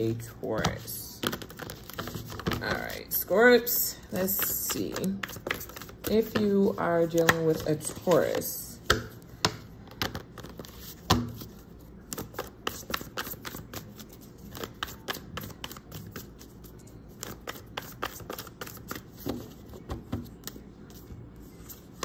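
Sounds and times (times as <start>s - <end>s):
cards being shuffled: 4.4s - 8.5s, 10.0s - 16.5s, 17.1s - 20.6s.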